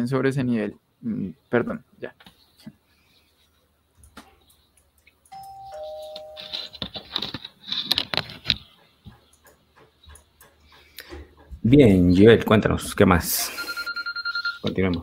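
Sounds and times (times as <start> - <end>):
two-note ding-dong chime: 5.3 - 6.6.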